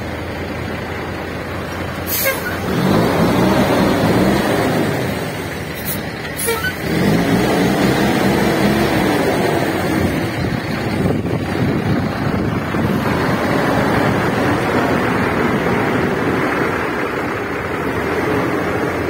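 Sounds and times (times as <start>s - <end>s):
diesel truck engine running: 0.0s - 19.0s.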